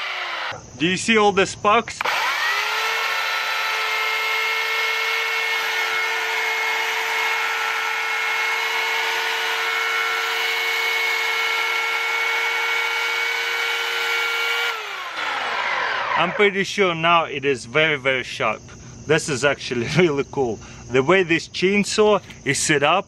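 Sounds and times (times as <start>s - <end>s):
chainsaw motor whine: 0.0s - 0.7s, 2.0s - 16.8s.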